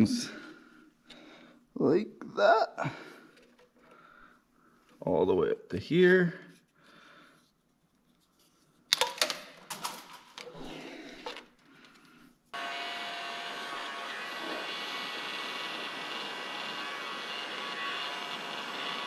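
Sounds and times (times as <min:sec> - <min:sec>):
tools being handled: 0:07.5 - 0:12.2
heat gun fan whining: 0:12.6 - 0:19.0.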